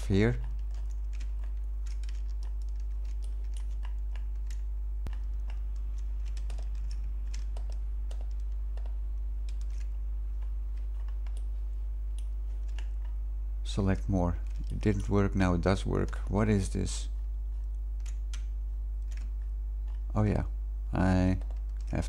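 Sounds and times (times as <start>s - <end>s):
low hum: 0.0s - 22.0s
keyboard and mouse clicks: 0.4s - 11.5s, 12.1s - 13.2s, 14.4s - 15.2s, 17.6s - 20.1s, 21.3s - 22.0s.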